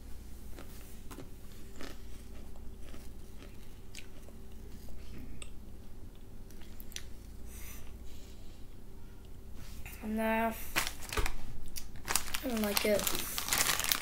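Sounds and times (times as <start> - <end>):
child chewing crisps: 0.5 - 5.6, 10.7 - 14.0.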